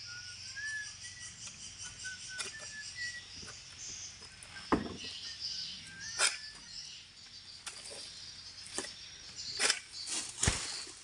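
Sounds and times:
steady high hiss: 0.0 - 5.8.

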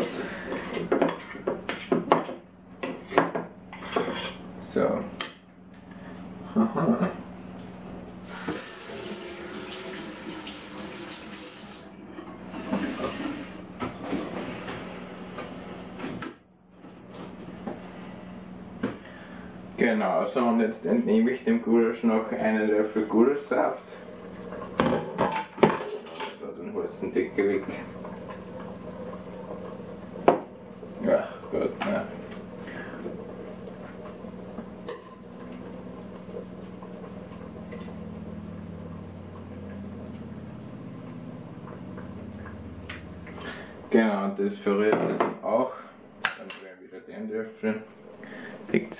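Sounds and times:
water running from a tap: 8.2 - 11.9, 22.4 - 24.9, 26.7 - 44.0
pot bubbling: 22.5 - 25.2, 26.7 - 44.0.

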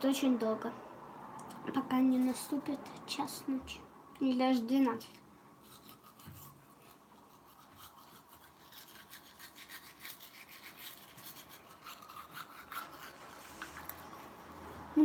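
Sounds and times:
toothbrush scrubbing teeth: 5.6 - 15.0.

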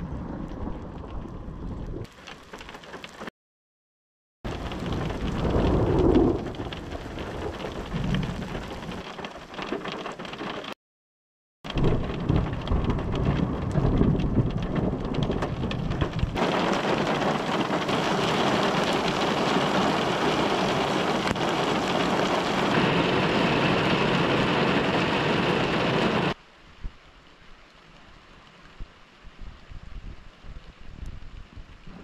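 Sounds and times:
heavy rain: 0.0 - 3.3, 4.5 - 10.8, 11.7 - 32.0
thunder rumbling: 4.5 - 9.3, 11.7 - 26.4.

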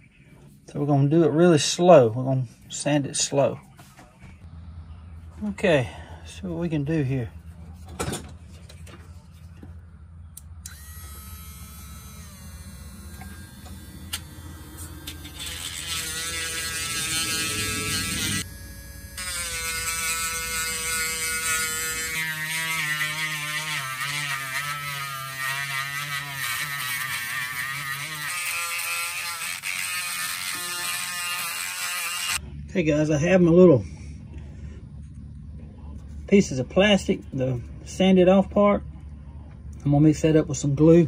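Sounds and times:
electric sanding tool whining: 10.6 - 32.4.

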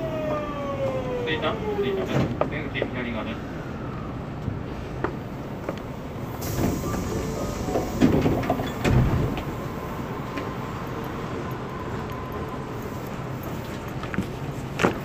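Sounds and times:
steady subway rumble: 0.0 - 15.0
hiss: 6.3 - 8.8.

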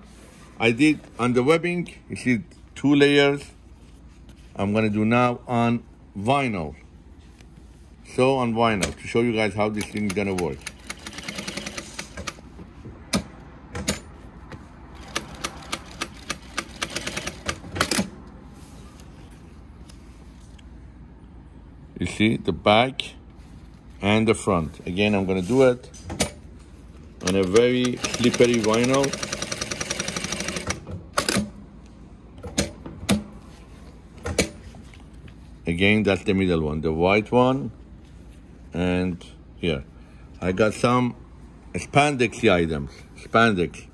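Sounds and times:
sewing machine stitching: 10.1 - 12.4, 15.0 - 18.1, 27.2 - 31.4
sharp mechanical clicks: 27.2 - 31.5.

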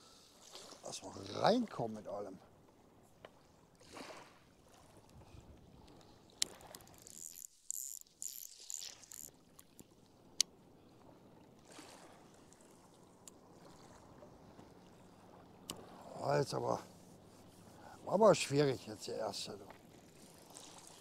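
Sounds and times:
water splashing: 0.0 - 2.0, 5.9 - 9.8, 11.0 - 21.0.

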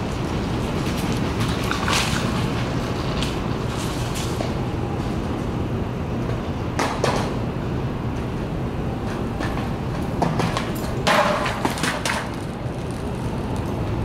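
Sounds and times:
low street rumble: 0.0 - 14.0.

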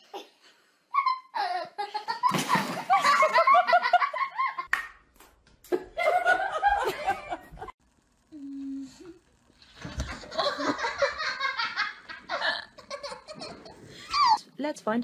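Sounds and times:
people laughing: 1.4 - 4.7, 5.7 - 7.7, 9.9 - 14.4.

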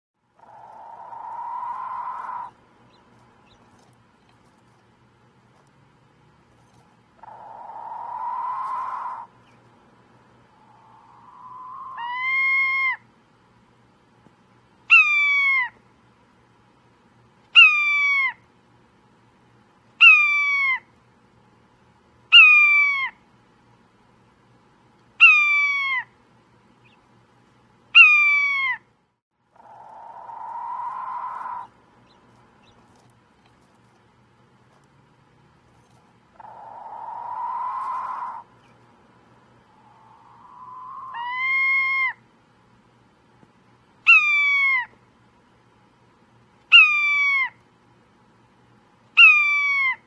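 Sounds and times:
rising bird call: 0.4 - 2.6, 7.2 - 9.4, 10.5 - 13.0, 29.6 - 32.2, 36.4 - 38.5, 39.6 - 42.2
hoarse bird call: 0.4 - 3.6, 7.2 - 9.6, 10.5 - 13.0, 29.5 - 32.8, 36.4 - 38.8, 39.7 - 42.2
bird calls falling in pitch: 39.9 - 42.2.

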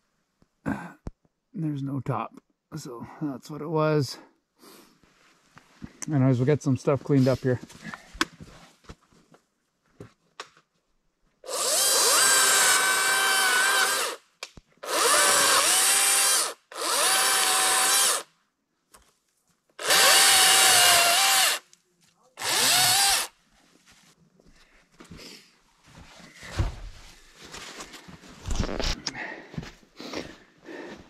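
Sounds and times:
electric chainsaw whining: 11.4 - 14.2, 14.8 - 18.3, 19.8 - 21.6, 22.4 - 23.3.

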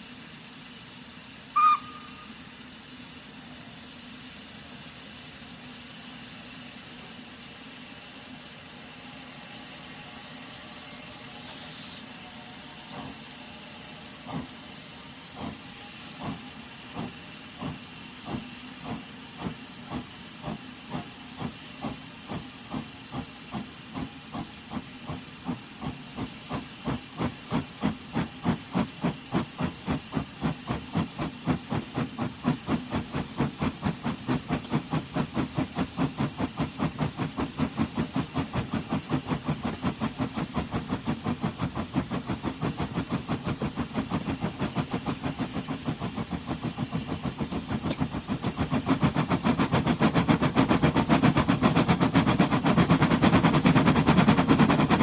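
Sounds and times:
steam hissing: 0.0 - 55.0
steam locomotive exhaust chuffs: 0.0 - 55.0
steam locomotive whistle: 1.5 - 2.5, 9.2 - 14.2.

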